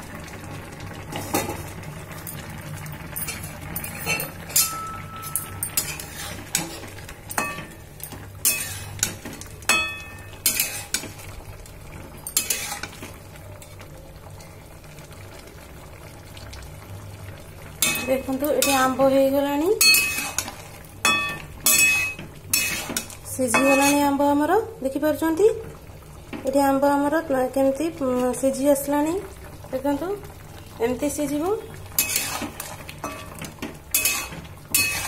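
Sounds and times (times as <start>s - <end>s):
water boiling: 0.0s - 35.0s
metal spatula scraping a pan: 3.2s - 7.8s, 8.4s - 9.2s, 9.8s - 11.1s, 12.3s - 13.0s, 19.8s - 20.6s, 21.6s - 24.1s, 32.0s - 35.0s.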